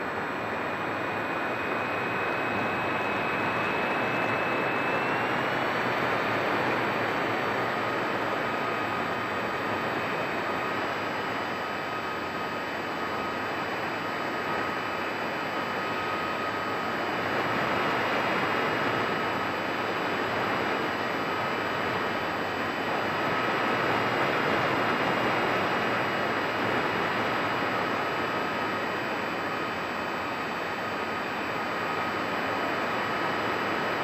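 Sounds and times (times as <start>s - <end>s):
airflow and propeller noise: 0.0s - 34.0s
thin motor whine: 0.0s - 34.0s.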